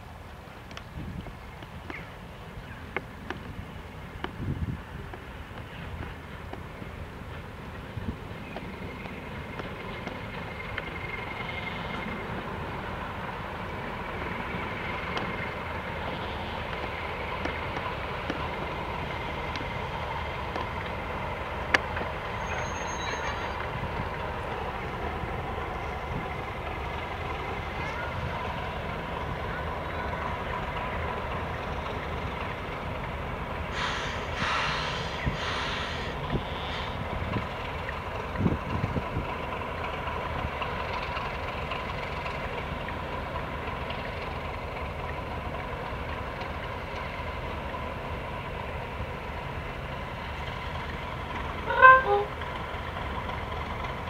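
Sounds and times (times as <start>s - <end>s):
diesel locomotive engine drone: 0.0s - 54.0s
short hiss: 33.7s - 37.0s.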